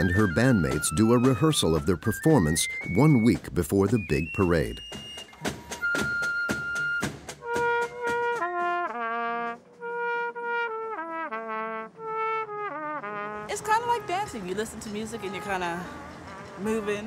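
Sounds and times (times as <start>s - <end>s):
flute holding a high note: 0.0s - 8.7s
cornet playing a melody: 0.0s - 17.0s.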